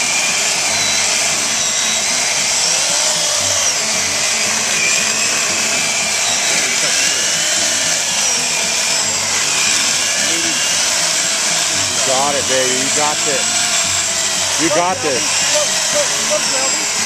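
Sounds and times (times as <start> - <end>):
electric chainsaw cutting log: 0.0 - 17.0.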